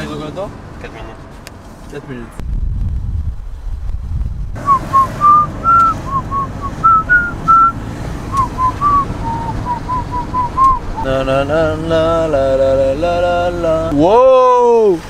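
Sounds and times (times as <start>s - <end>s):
steady low rumble: 2.2s - 14.0s
person whistling a tune: 4.7s - 11.1s.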